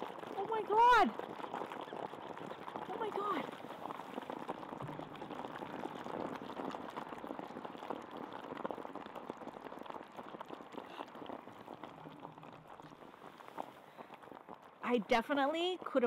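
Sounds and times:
fast bubbling crackle: 0.0s - 16.0s.

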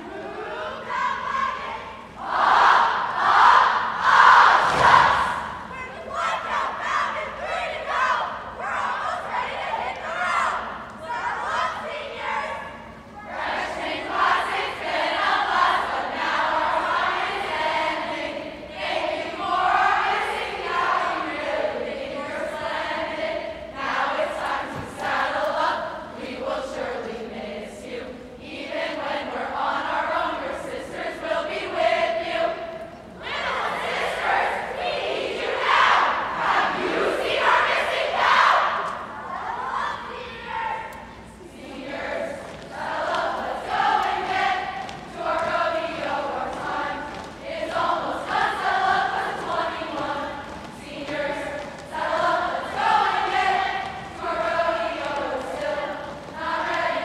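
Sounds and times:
group of voices singing: 0.0s - 5.7s, 13.2s - 39.9s, 40.8s - 57.0s
crowd chanting: 0.0s - 8.1s.

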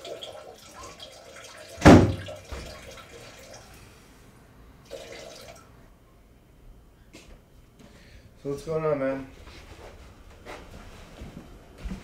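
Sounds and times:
door shutting with thump: 1.8s - 2.7s.

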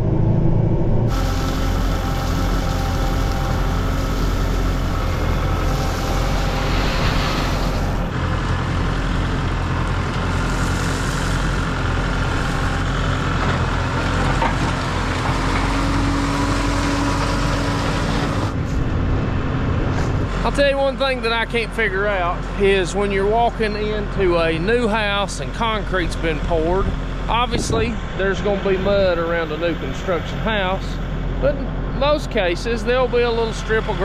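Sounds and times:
tractor diesel engine running: 0.0s - 34.0s
blade dragging through gravel: 1.1s - 8.1s.

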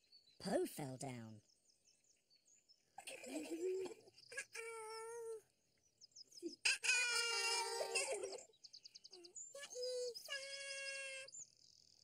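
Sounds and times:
high-pitched vocal calls: 6.4s - 8.4s, 9.1s - 11.4s.

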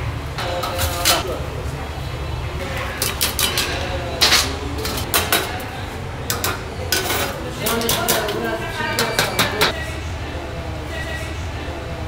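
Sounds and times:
metal plates clinking: 0.4s - 1.3s, 2.8s - 9.7s.

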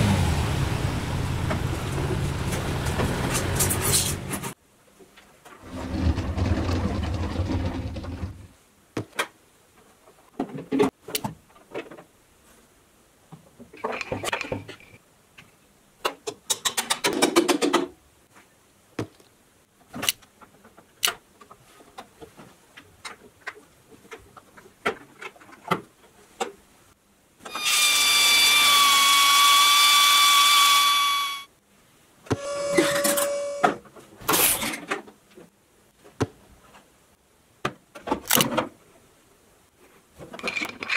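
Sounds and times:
short tone: 32.4s - 33.8s.

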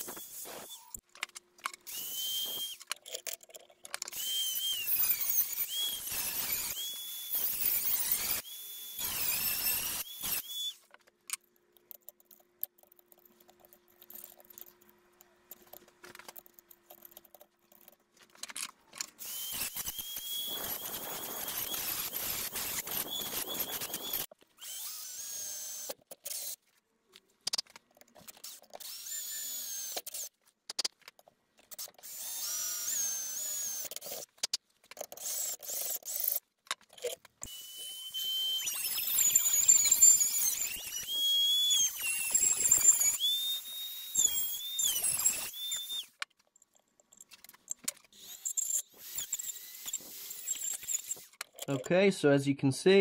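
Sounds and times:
rotary tool grinding metal: 0.0s - 11.0s, 11.8s - 26.6s, 28.2s - 30.9s, 31.6s - 51.9s.

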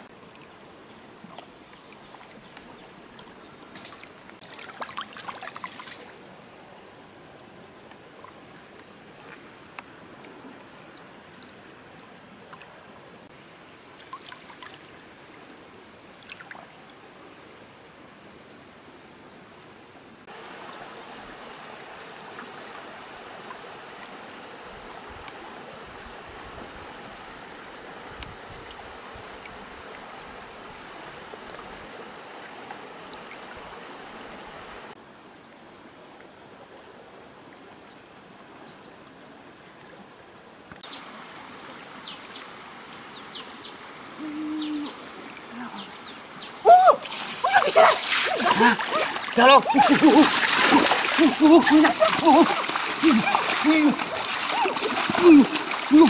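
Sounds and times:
high insect trill: 0.0s - 56.0s
trickling stream water: 0.0s - 56.0s
eel splashing in water: 47.0s - 56.0s.

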